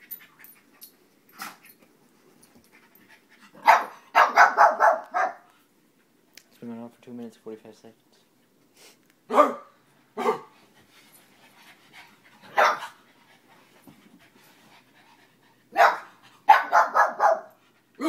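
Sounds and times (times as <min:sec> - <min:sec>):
dogs barking and yapping: 0:03.3 - 0:05.6, 0:09.3 - 0:10.6, 0:12.4 - 0:13.1, 0:15.6 - 0:17.6.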